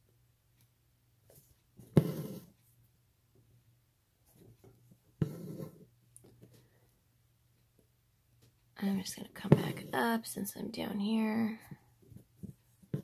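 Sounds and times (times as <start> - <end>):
needle tapping through fabric: 1.3 - 2.5, 4.4 - 6.6, 9.4 - 10.0, 11.6 - 13.0
thread rasping through fabric: 1.3 - 2.6, 4.3 - 6.6.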